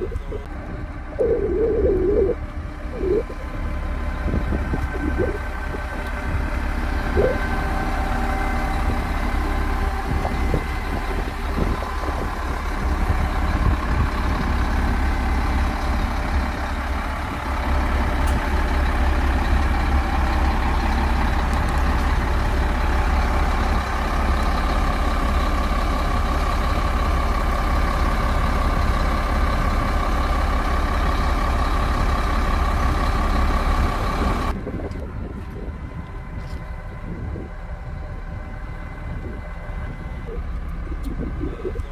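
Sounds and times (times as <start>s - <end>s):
diesel engines rumbling: 0.0s - 41.9s.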